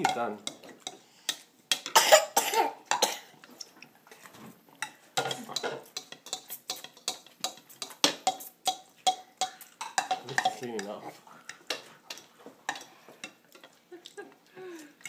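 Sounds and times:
person coughing: 2.0s - 3.3s
metal fork clinking on bowl: 5.2s - 11.0s.

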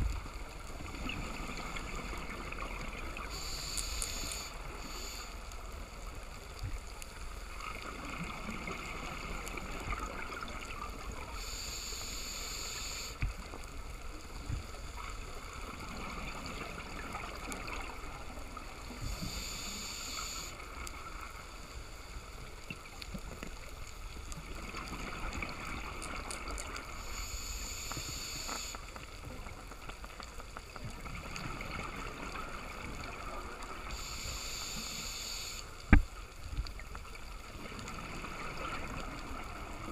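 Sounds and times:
hissing inhale through regulator: 3.2s - 5.6s, 11.3s - 13.2s, 18.9s - 20.6s, 26.9s - 28.9s, 33.8s - 35.7s.

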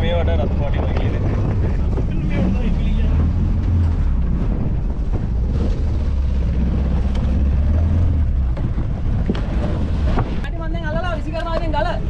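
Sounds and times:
outboard motor droning: 0.0s - 10.8s.

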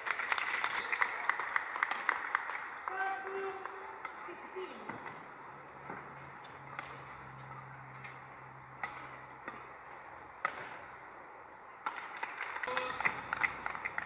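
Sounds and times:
racket striking shuttlecock: 3.2s - 11.0s, 11.8s - 14.0s.

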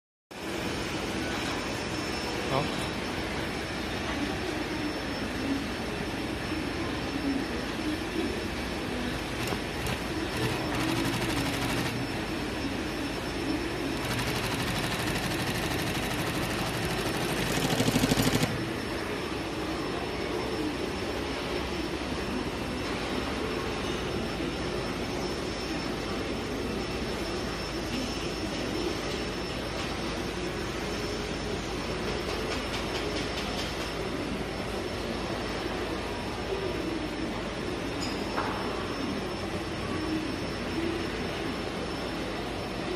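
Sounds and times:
steady background hum: 0.3s - 42.9s
sewing machine chatter: 9.2s - 18.8s.

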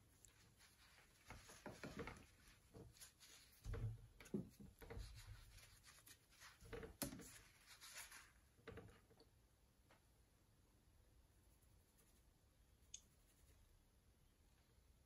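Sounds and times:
paintbrushes and palette handled: 0.2s - 9.1s.

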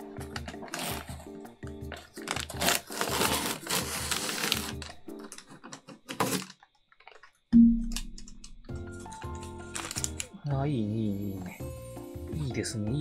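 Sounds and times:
background music with a beat: 7.6s - 9.7s
loud low musical tone: 7.6s - 10.0s.

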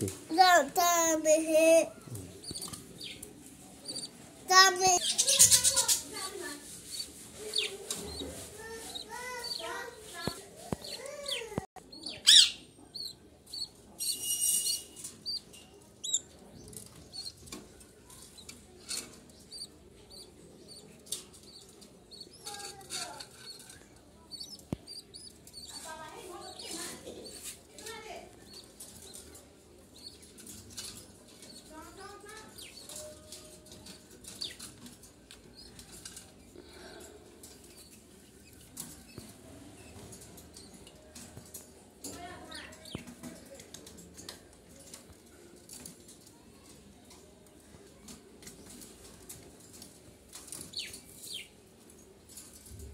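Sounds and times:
budgerigars chirping: 6.9s - 8.3s.

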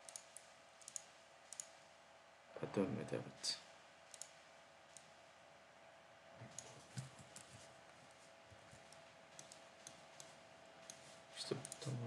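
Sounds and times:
faint computer mouse clicks: 0.0s - 1.8s, 4.1s - 5.1s, 8.9s - 11.9s.

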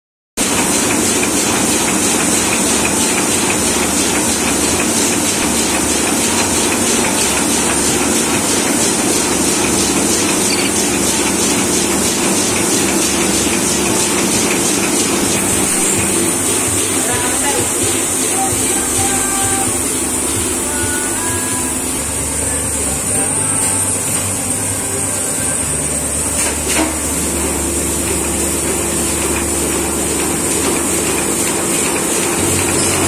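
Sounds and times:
printing press rattle: 0.4s - 33.0s.

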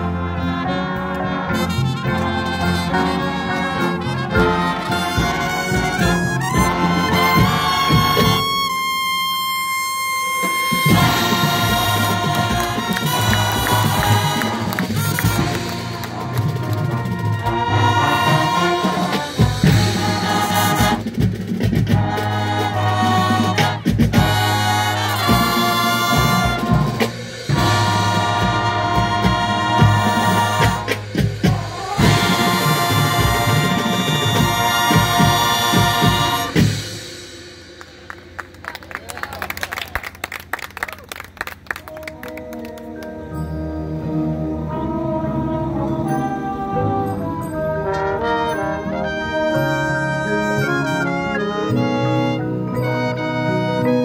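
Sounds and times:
brass ensemble playing: 0.0s - 38.9s, 41.8s - 54.0s
percussion hits: 10.4s - 40.4s.

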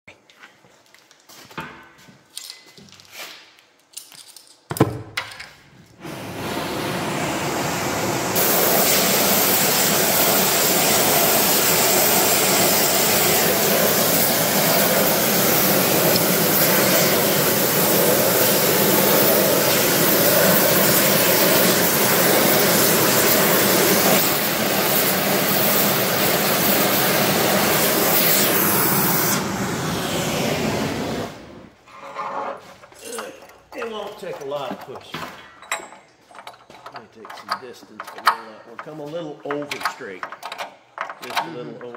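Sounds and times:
torch flame rushing: 6.0s - 31.8s.

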